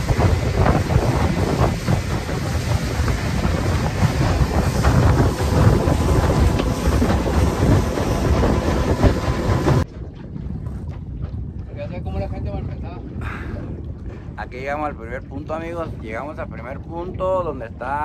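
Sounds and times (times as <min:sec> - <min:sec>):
outboard motor running: 0:00.0 - 0:11.4
wind buffeting microphone: 0:00.0 - 0:18.0.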